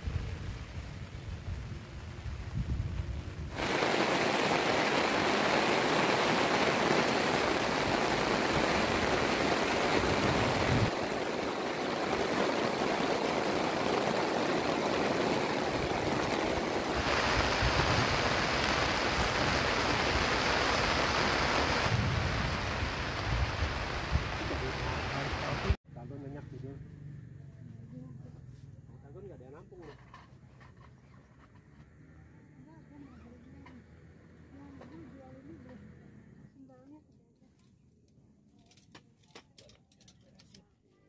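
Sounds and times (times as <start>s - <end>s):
heavy rain pouring: 0.0s - 25.8s
wind rumble on microphone: 0.0s - 25.8s.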